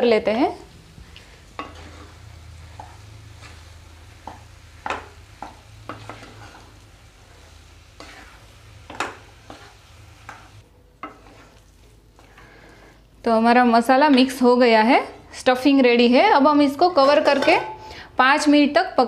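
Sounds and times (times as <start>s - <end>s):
spatula scraping and knocking pan: 1.5s - 12.6s, 16.9s - 17.9s.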